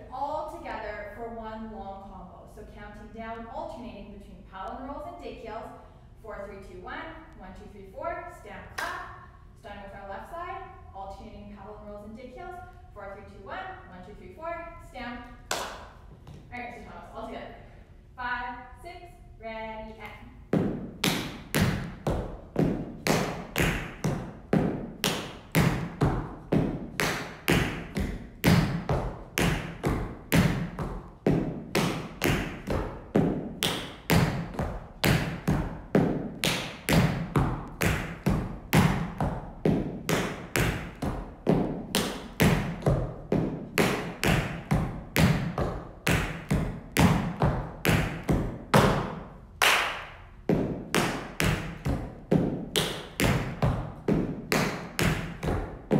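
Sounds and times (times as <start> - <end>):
tap shoes on hard floor: 16.1 - 16.5.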